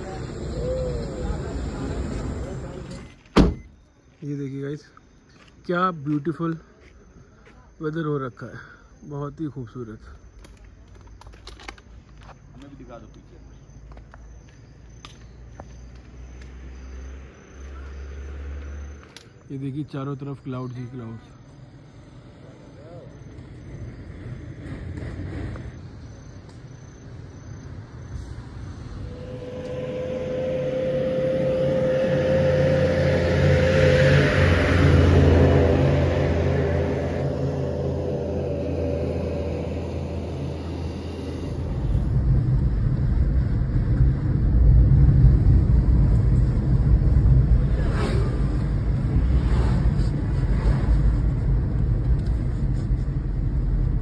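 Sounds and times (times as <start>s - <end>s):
vehicle engine humming: 0.0s - 3.3s, 20.8s - 54.0s.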